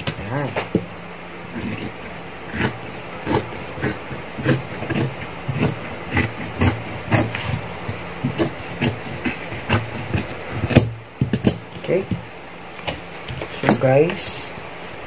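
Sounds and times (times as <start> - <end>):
shears snipping leather: 1.5 - 13.9.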